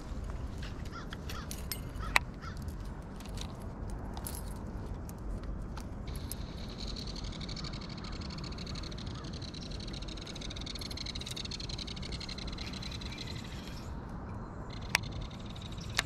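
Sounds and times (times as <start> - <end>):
metal blades jingling and clicking: 1.3 - 4.6.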